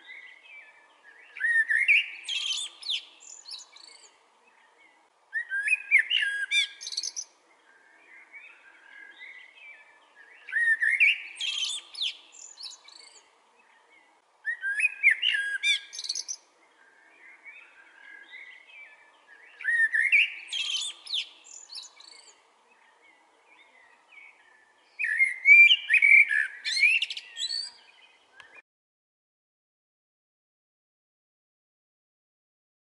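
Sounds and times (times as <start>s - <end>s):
blackbird singing fluty warble: 0.0s - 28.6s
faint bird chirps: 0.0s - 28.6s.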